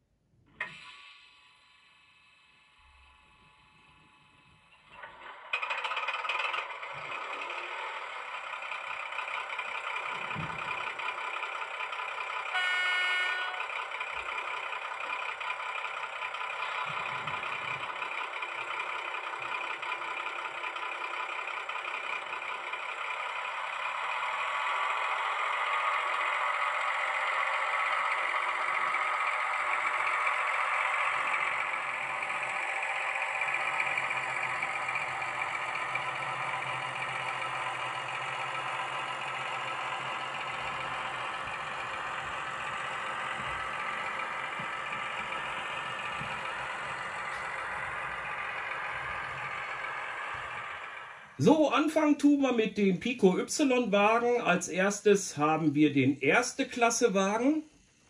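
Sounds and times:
model diesel engine sound: 0.6 - 58.0
short horn toot: 12.6 - 13.7.

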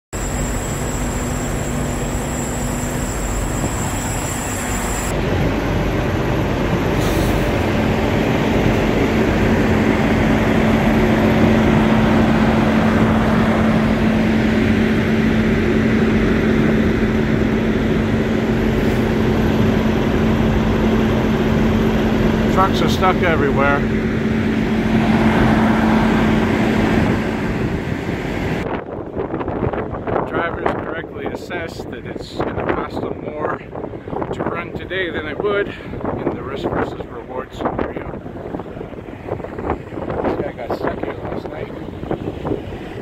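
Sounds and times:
diesel trucks idling: 0.2 - 28.6.

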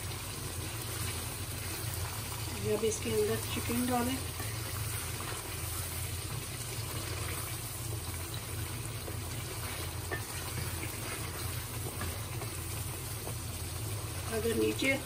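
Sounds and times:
gravy bubbling in a pan: 0.0 - 15.0
wooden spoon scraping a pan: 0.9 - 7.6, 9.0 - 13.4.

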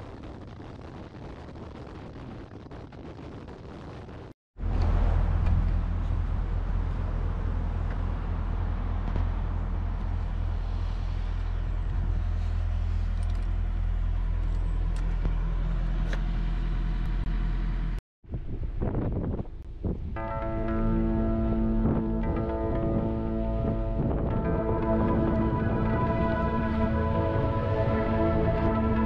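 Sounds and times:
road and wind noise: 0.0 - 29.0
engine idling: 4.6 - 18.0.

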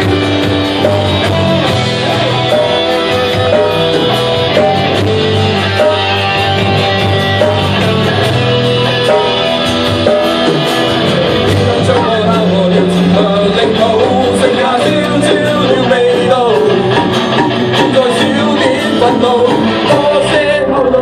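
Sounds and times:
bass guitar: 0.0 - 21.0
drums: 0.0 - 21.0
electric guitars: 0.0 - 21.0
person singing: 9.0 - 21.0.

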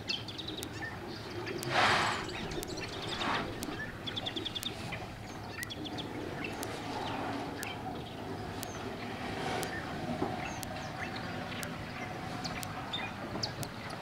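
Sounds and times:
small birds chirping: 0.0 - 14.0
short rush of noise: 1.7 - 2.4.

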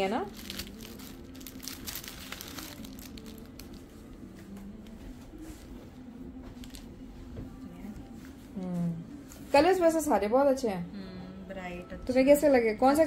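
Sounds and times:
plastic wrapping crinkling: 0.2 - 4.4.

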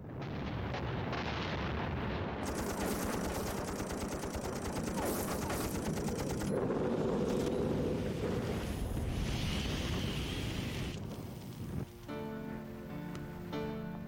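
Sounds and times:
machine-gun fire: 2.4 - 7.4.

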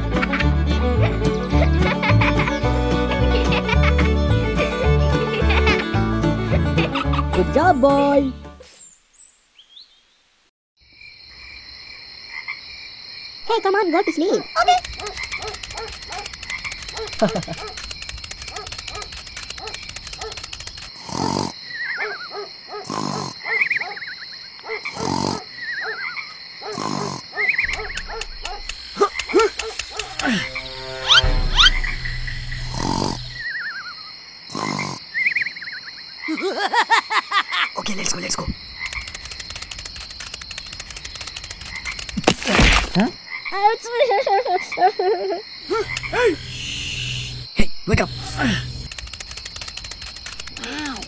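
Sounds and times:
rapid even croaking: 14.4 - 22.2, 24.7 - 33.6, 37.7 - 43.7, 45.6 - 51.0
cartoon snoring: 21.0 - 21.6, 22.8 - 23.4, 24.9 - 25.5, 26.7 - 27.4, 34.5 - 35.0, 48.2 - 48.8.

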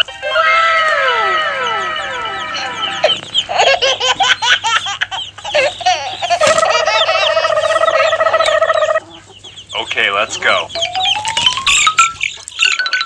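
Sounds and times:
high baby-like giggling: 1.7 - 8.9.

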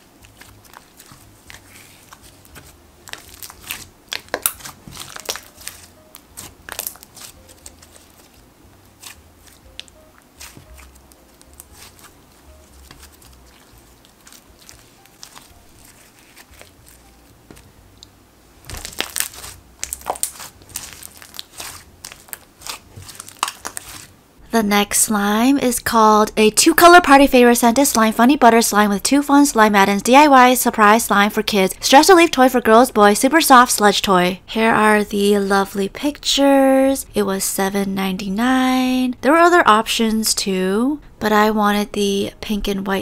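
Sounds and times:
slime squishing and popping: 0.2 - 24.1.

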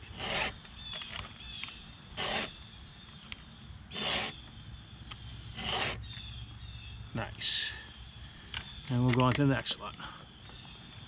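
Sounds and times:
file rasping on metal: 0.0 - 0.6, 2.2 - 2.5, 3.9 - 4.4, 5.5 - 6.0.

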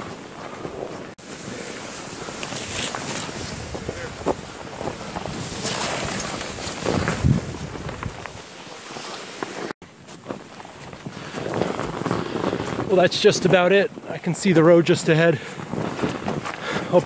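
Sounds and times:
footsteps crunching in snow: 0.0 - 17.0
sled dragging over snow: 0.0 - 17.0
wind buffeting microphone: 3.2 - 8.4.

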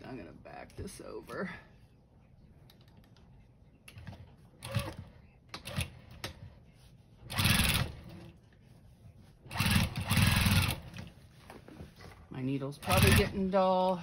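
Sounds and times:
sewing machine stitching: 4.6 - 6.1, 7.3 - 8.3, 9.5 - 11.0, 12.8 - 13.4.

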